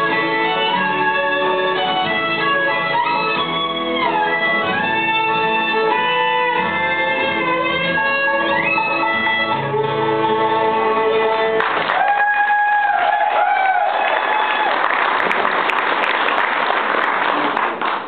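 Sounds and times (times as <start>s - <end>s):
bluegrass band playing: 0.0s - 11.9s
applause: 11.6s - 18.0s.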